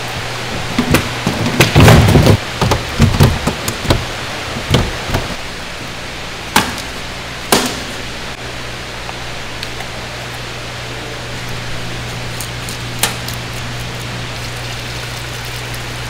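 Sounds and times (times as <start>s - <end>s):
steady rushing noise and hum: 0.0s - 14.4s
irregular knocks and thuds: 0.6s - 5.4s.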